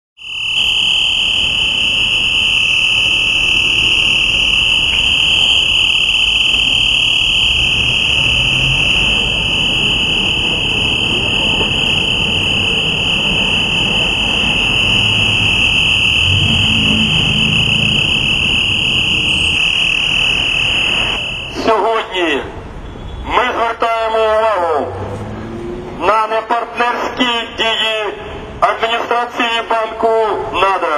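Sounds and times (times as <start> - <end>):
high-pitched electronic tone: 0.2 - 22.0
low street traffic: 0.5 - 30.9.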